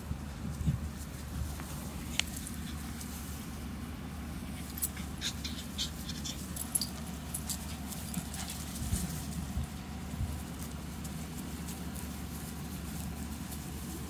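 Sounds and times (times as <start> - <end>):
steady low hum: 0.0 - 14.0
dogs panting: 1.7 - 3.3, 4.4 - 9.5
dogs scuffling: 4.5 - 14.0.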